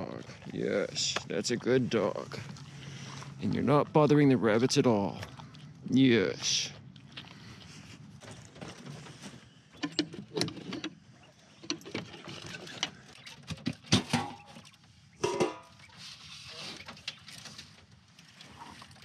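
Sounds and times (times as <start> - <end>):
handling knocks and clicks: 9.8 - 11.0
metal can lid clanking: 13.9 - 14.5, 15.2 - 15.7.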